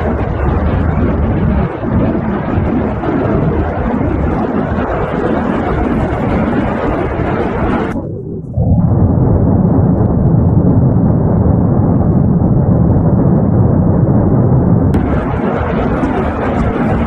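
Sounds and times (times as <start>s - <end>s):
deep volcanic rumble: 0.0s - 17.0s
hissing: 6.4s - 17.0s.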